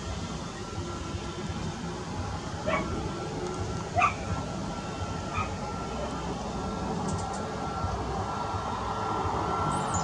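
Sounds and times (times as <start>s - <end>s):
jet engines rumbling: 0.0s - 10.0s
barking yelps: 2.7s - 2.9s, 4.0s - 4.2s.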